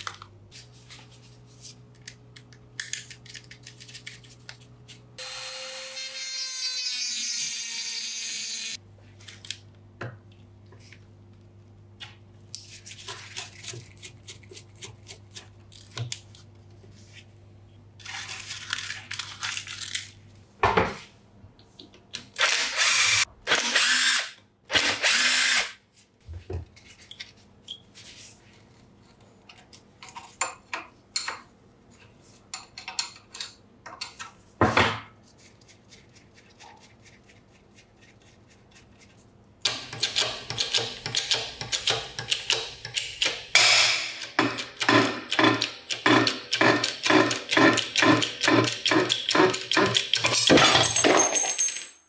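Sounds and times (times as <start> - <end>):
clicks and knocks of parts: 39.7 - 51.9.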